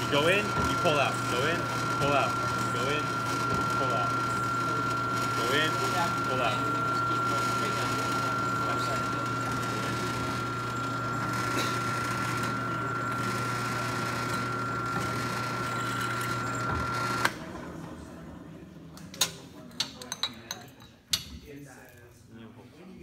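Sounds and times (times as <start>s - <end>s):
drill press motor whining: 0.0s - 18.1s.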